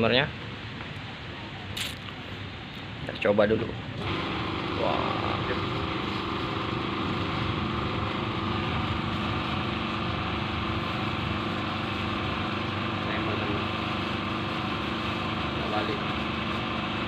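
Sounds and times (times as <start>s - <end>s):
washing machine motor running: 4.0s - 17.0s.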